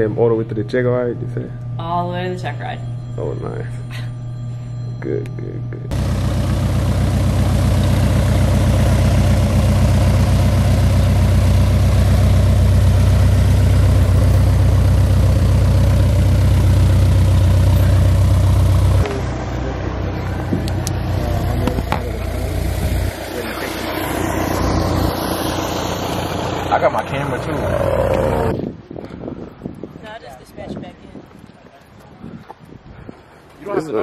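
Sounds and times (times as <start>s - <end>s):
propeller airplane engine running: 5.8s - 28.6s.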